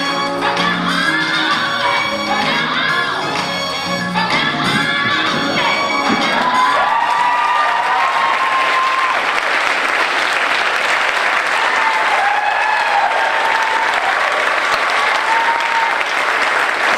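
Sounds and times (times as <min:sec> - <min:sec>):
people cheering: 0:06.0 - 0:16.9
audience applauding: 0:06.2 - 0:16.9.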